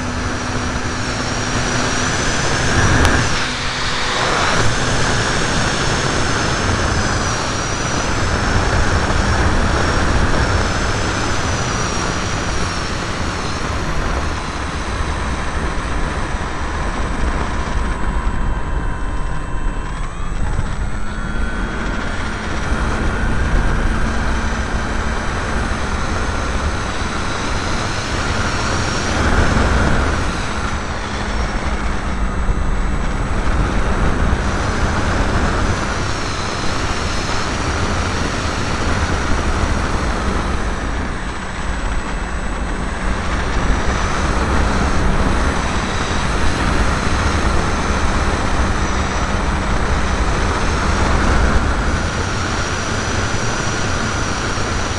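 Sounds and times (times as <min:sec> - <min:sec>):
electric motor and propeller hum: 0:00.0 - 0:54.9
wind rushing over microphone: 0:00.0 - 0:54.9.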